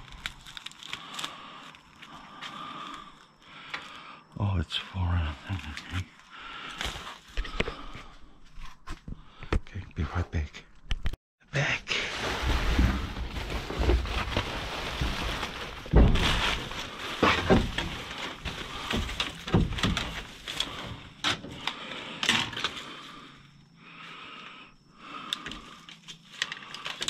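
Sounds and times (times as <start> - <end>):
rummaging through rubbish in dumpster: 11.9 - 22.8.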